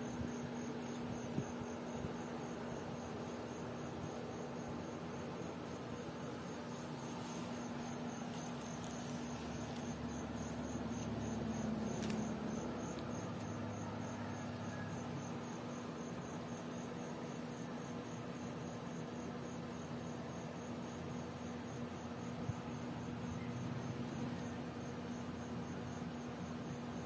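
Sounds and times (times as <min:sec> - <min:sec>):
cricket chirping: 0:00.0 - 0:27.0
low room hum: 0:00.0 - 0:27.0.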